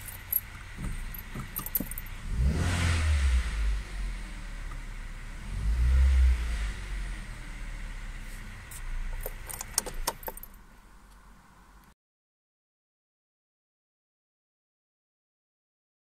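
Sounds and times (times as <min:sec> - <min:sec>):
keys jangling: 0:00.0 - 0:02.1, 0:09.2 - 0:10.6
car engine idling: 0:00.0 - 0:11.9.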